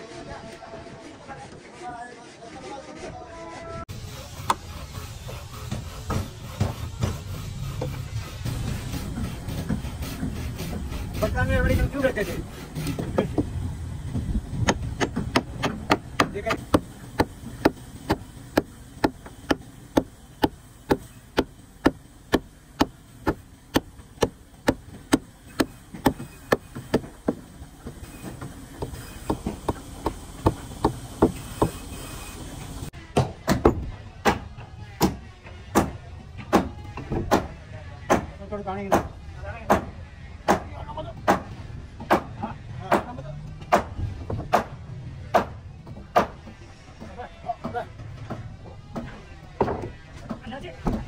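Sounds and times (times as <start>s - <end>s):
hammer striking: 14.6s - 31.8s, 33.1s - 38.3s, 38.9s - 42.3s, 42.9s - 46.5s.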